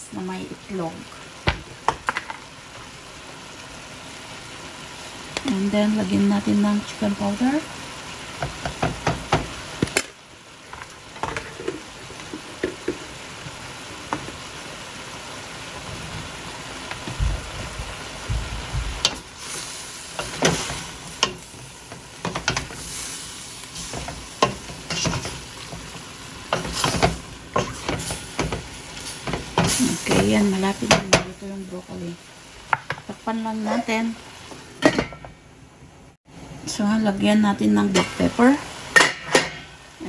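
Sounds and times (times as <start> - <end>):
food sizzling in a pan: 0.0 - 40.0
wooden spoon scraping a pan: 18.6 - 31.1.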